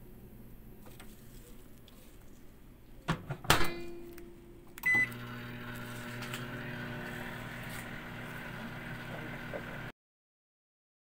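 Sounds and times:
microwave humming: 3.1s - 9.9s
microwave beep: 4.8s - 7.0s.

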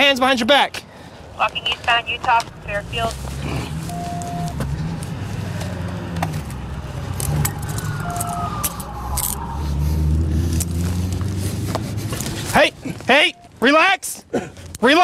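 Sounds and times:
vehicle engine rumbling: 0.9s - 14.9s
short beep: 3.9s - 4.5s, 13.1s - 13.6s
tone sliding down in pitch: 7.3s - 10.8s.

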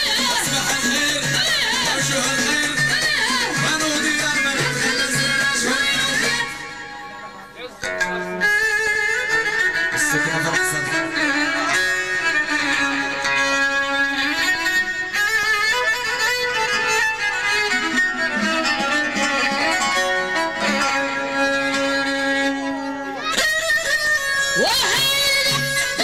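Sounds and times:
percussion beats: 0.0s - 7.2s.

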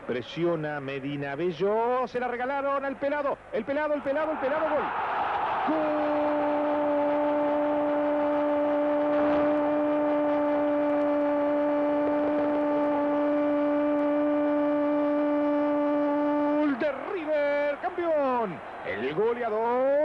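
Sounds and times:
crowd noise: 0.0s - 20.0s
commentator shouting goal: 5.6s - 8.8s, 16.6s - 20.0s.

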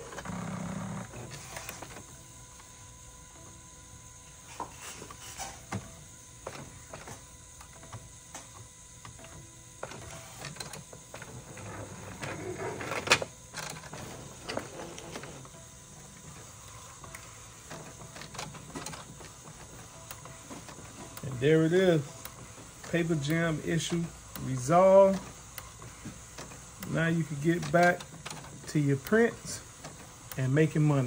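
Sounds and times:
printer clicking and whirring: 0.0s - 31.0s
printer sharp clack: 16.2s - 31.0s.

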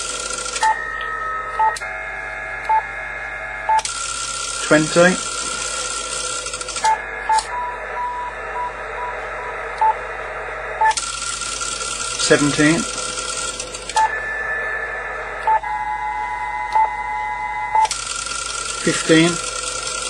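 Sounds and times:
steady tones: 0.0s - 20.0s
tuner clicks: 0.6s - 1.9s, 6.7s - 7.6s
radio band hiss: 4.3s - 16.1s, 18.6s - 20.0s
short beeps: 6.8s - 10.0s, 14.0s - 17.9s.

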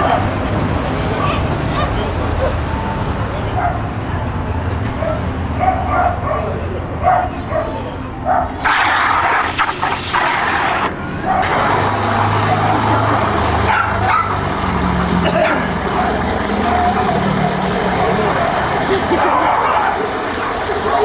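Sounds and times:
dogs barking and yipping: 5.0s - 14.8s, 15.4s - 21.0s.

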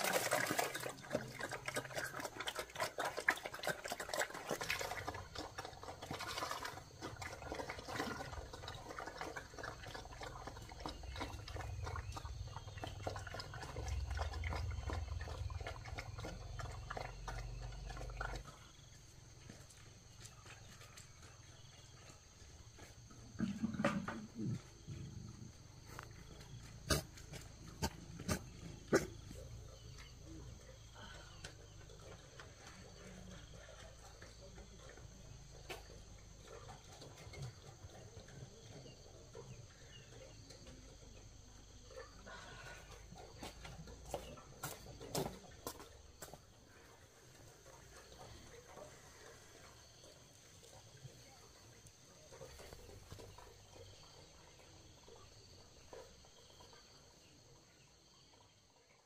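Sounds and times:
low rough animal grunt: 0.0s - 19.6s, 22.8s - 45.6s.

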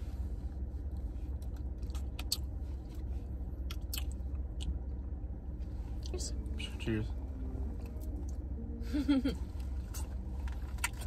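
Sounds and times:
steady low hum: 0.0s - 11.0s
mouth clicks and smacks eating: 3.7s - 4.8s.

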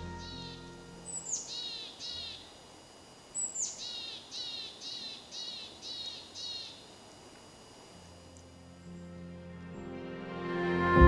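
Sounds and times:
songbird singing: 0.0s - 7.0s.

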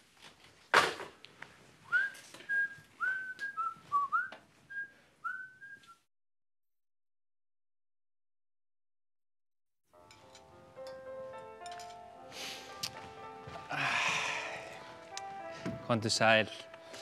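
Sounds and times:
person whistling a tune: 1.9s - 6.1s.

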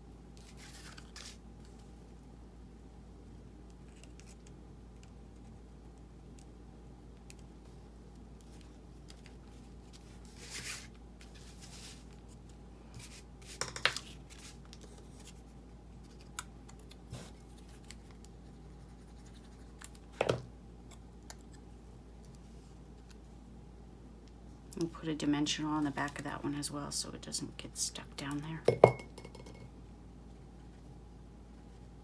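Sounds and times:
low steady hum: 0.0s - 32.0s
paper rustling: 0.4s - 1.9s, 8.4s - 18.3s.

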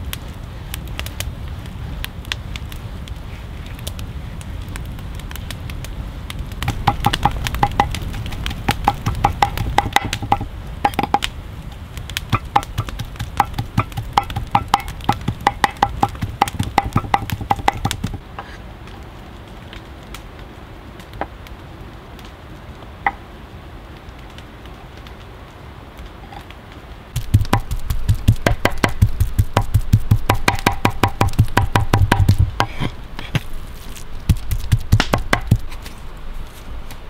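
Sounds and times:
knife chopping on wooden board: 27.2s - 33.5s.

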